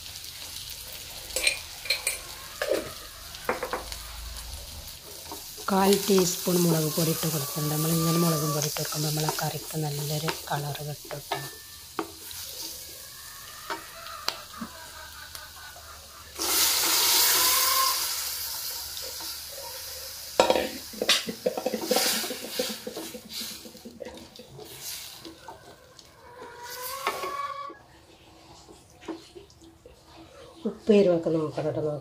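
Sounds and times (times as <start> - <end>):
loud rush of sizzling: 0.0 - 14.0, 16.3 - 21.0
onions sizzling in oil: 0.0 - 27.8.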